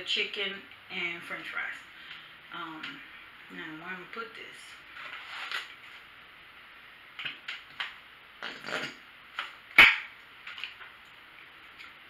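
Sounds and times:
packaging rustle: 4.9s - 6.0s.

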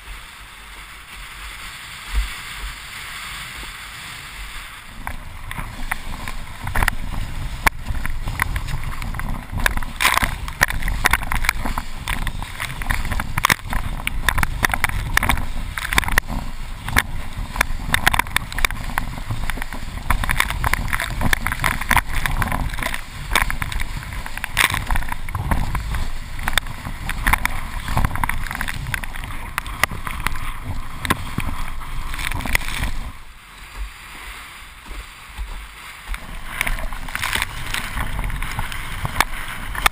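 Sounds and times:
board hull slapping water: 0.0s - 39.9s
wind buffeting microphone: 4.9s - 39.9s.

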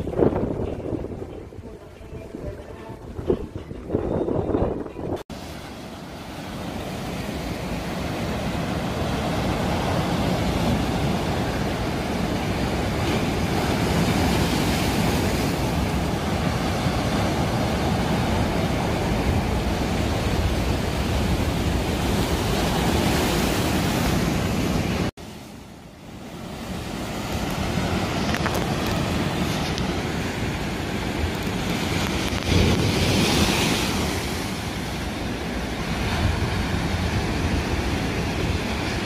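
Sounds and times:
wind buffeting microphone: 0.0s - 5.5s, 26.8s - 39.0s
sea waves breaking on rocks: 5.3s - 39.0s.

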